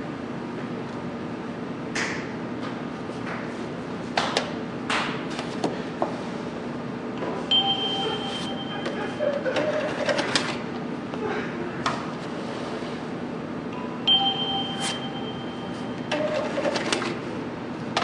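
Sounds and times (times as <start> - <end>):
low machine hum: 0.0 - 18.0
high electronic beep: 7.5 - 8.9, 14.1 - 16.3.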